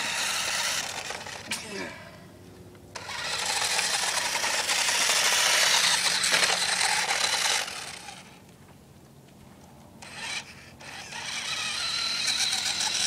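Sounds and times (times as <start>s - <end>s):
toy motor and gears whirring: 0.0s - 1.9s, 3.0s - 8.4s, 10.0s - 13.0s.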